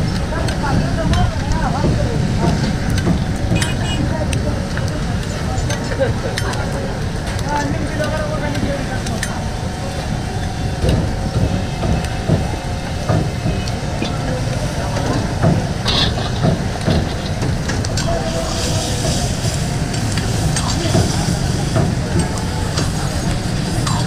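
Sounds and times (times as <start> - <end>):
ladle scraping metal pan: 15.8 - 16.4.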